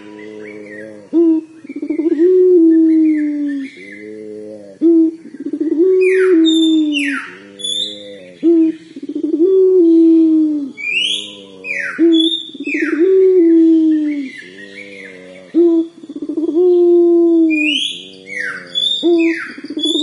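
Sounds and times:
bird chirping: 0.0s - 20.0s
dove cooing: 0.0s - 20.0s.

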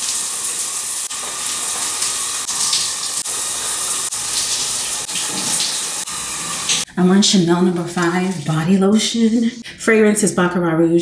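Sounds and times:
shower spray on tiles: 0.0s - 6.9s, 7.8s - 9.6s.

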